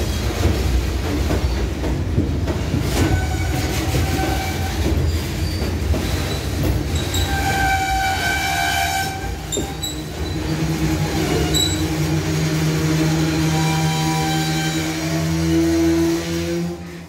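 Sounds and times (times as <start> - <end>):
freight cars rumbling on rails: 0.0 - 17.0
high-pitched wheel squeal: 7.0 - 12.0, 13.3 - 16.8.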